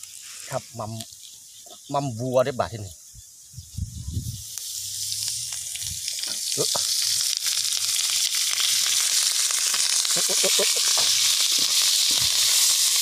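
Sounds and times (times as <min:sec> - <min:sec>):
sausage sizzling in hot oil: 0:00.0 - 0:02.0, 0:04.2 - 0:13.0.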